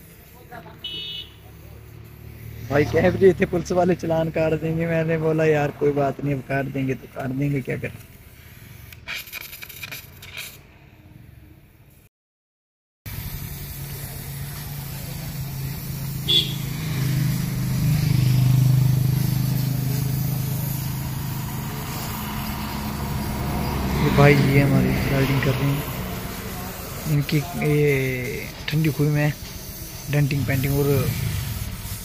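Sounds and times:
welding machine hum: 13.1s - 24.2s
welding arc crackling hiss: 13.1s - 32.0s.

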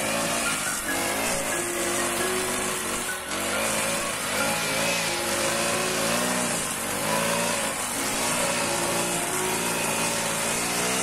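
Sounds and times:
brush cutter engine cutting grass: 0.0s - 11.0s.

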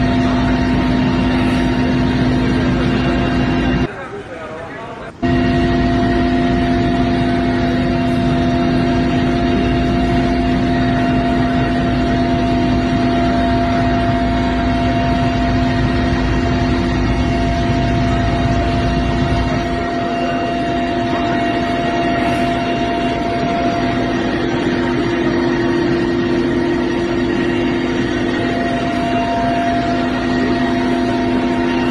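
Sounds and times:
helicopter engine and rotor drone: 0.0s - 31.9s.

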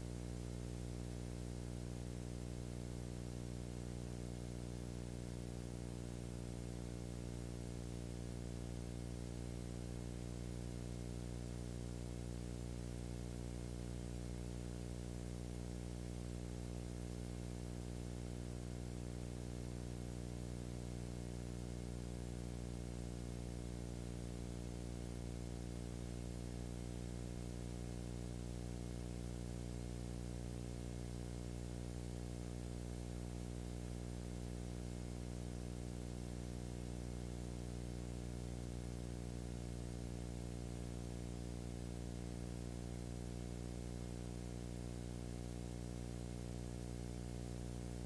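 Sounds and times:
electrical hum: 0.0s - 17.4s, 18.0s - 34.5s.

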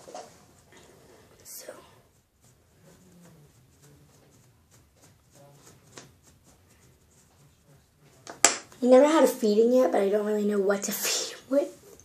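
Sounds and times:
soft brushing on silicone toy: 0.0s - 8.2s.

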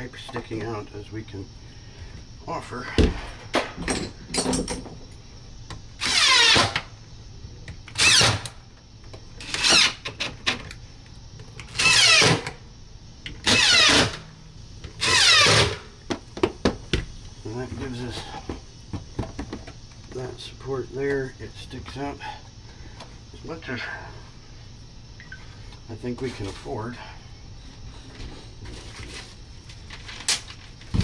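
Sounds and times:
cordless drill driving screws: 15.0s - 15.8s.

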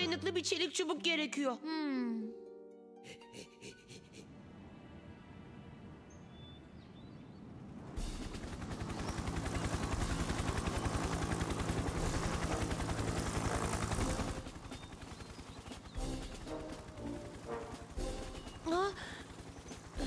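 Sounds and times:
faint background music: 0.0s - 20.0s
helicopter rotor chopping: 7.6s - 20.0s.

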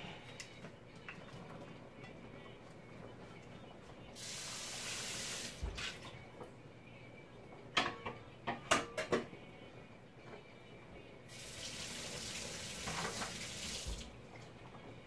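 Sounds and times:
tap running into sink: 12.2s - 14.1s.

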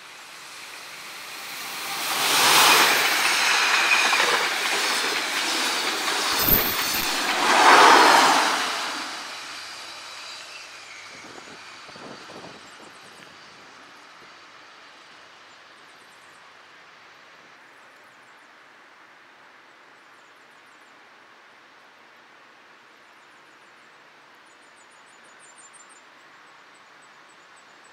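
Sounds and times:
train rumbling on rails: 0.0s - 14.5s
train wheel clacks: 0.4s - 10.0s.

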